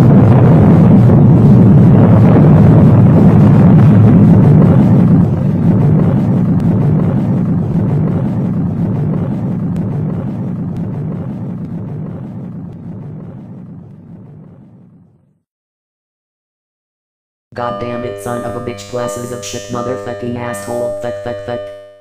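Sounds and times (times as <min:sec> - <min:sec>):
deep rumble of explosion: 0:00.0 - 0:15.5.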